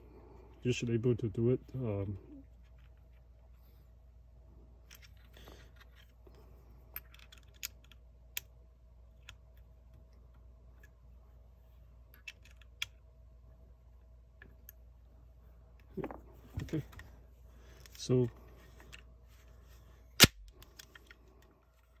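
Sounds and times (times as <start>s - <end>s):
faint steady hum: 0.0s - 22.0s
clicks of gun parts: 6.9s - 8.5s, 20.2s - 22.0s.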